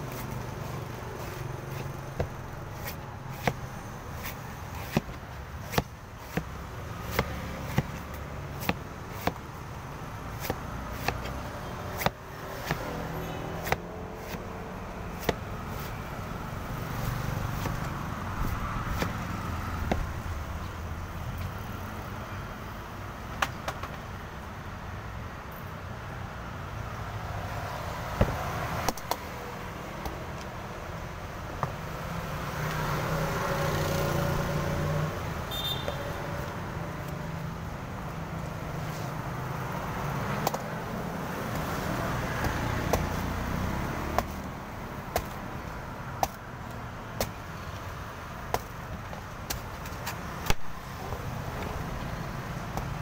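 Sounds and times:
cleaver chopping coconut husk: 0.0 - 20.8, 38.9 - 47.8, 48.4 - 53.0
street traffic: 0.0 - 53.0
vehicles passing: 0.0 - 53.0.

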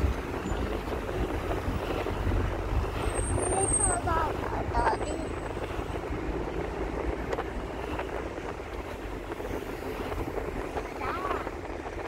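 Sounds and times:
car road and engine noise: 0.0 - 12.0.

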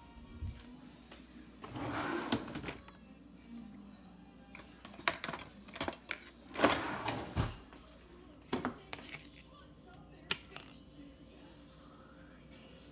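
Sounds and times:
utensils sliding in drawer: 1.6 - 2.8, 5.0 - 7.5
metal utensils clattering: 4.6 - 7.7.

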